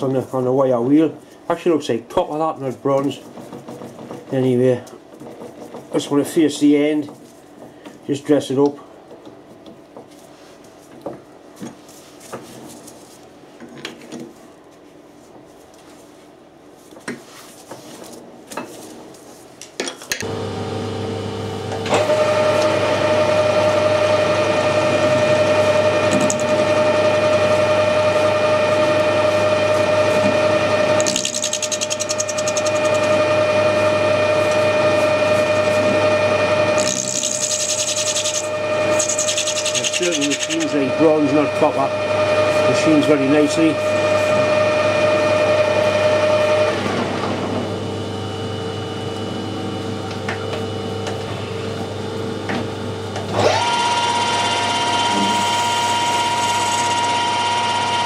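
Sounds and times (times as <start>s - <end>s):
lathe running with whine: 20.2s - 46.9s, 53.3s - 58.0s.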